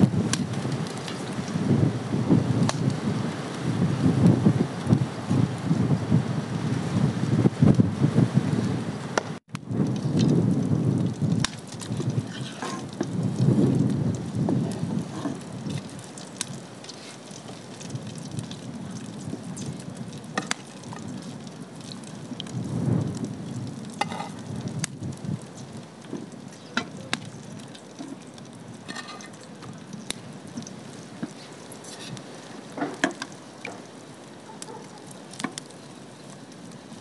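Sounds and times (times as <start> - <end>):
oil popping and crackling: 0.0 - 37.0
food sizzling in oil: 12.1 - 33.9.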